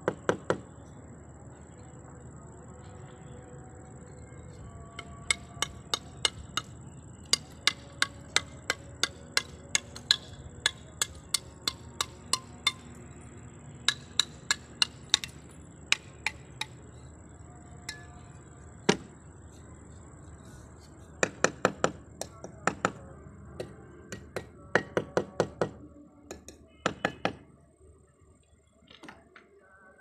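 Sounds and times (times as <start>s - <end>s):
trowel tapping clay tile: 7.3s - 12.8s, 13.9s - 16.7s.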